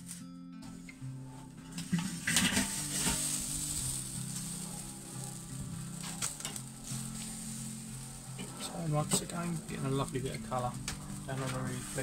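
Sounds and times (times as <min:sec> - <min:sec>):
fish sizzling over charcoal: 0:00.0 - 0:12.0
metal clanks of grill lid: 0:01.7 - 0:03.3.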